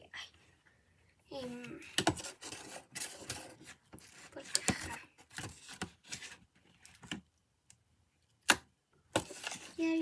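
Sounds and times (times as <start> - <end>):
spoon scraping plastic bowl: 9.2 - 10.0.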